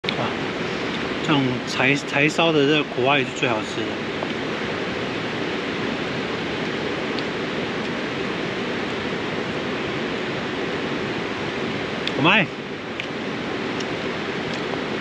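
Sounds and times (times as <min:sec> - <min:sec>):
mountain stream rushing: 0:00.0 - 0:15.0.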